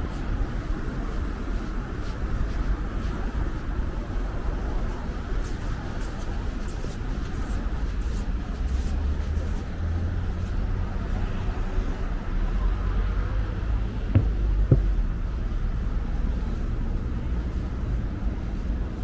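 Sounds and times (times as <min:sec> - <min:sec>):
traffic rumble: 0:00.0 - 0:19.0
low thumps: 0:14.1 - 0:15.2.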